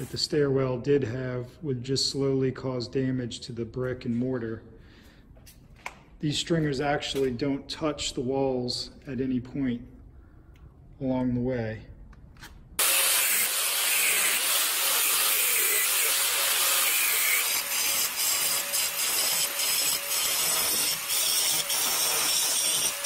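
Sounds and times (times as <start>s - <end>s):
angle grinder grinding: 12.8s - 23.0s.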